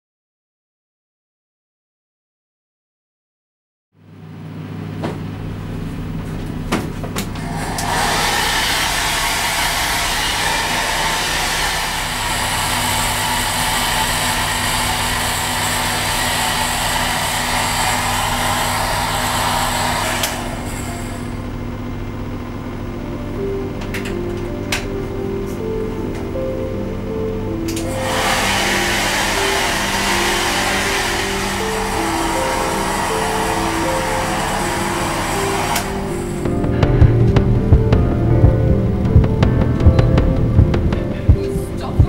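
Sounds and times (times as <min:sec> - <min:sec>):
hair dryer motor hum: 0:07.2 - 0:21.9, 0:23.1 - 0:42.0
rush of blown air: 0:07.4 - 0:14.7.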